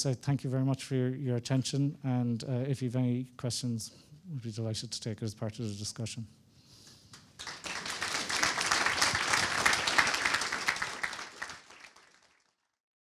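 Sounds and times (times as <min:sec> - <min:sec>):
audience applauding: 0:07.2 - 0:12.8.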